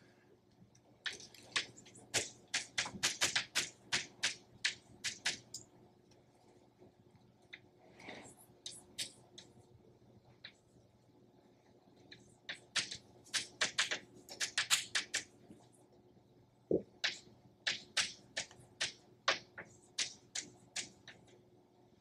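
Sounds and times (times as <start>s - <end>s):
chalk tapping and scratching: 1.1s - 5.6s, 12.1s - 15.3s, 17.0s - 21.3s.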